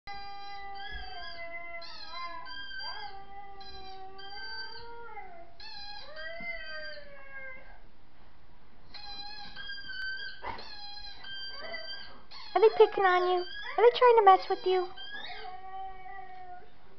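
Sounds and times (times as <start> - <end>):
dogs howling: 0.1 - 7.8, 9.0 - 13.8, 14.8 - 16.7.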